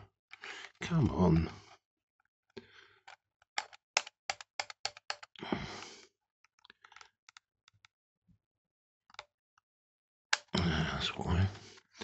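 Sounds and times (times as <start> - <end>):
sharp plastic clicks: 3.6 - 5.4.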